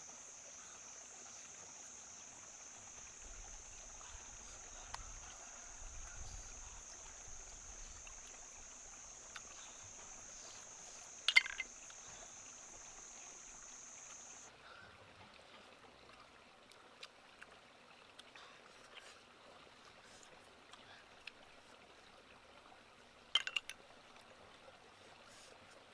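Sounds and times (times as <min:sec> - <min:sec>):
faint ticks: 0:00.5 - 0:14.5
insect buzzing high-pitched: 0:05.8 - 0:14.5.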